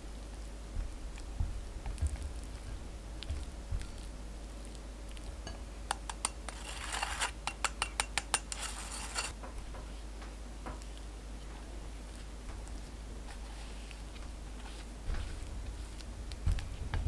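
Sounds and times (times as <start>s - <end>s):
metal spoon scraping a mesh sieve: 5.9s - 9.4s.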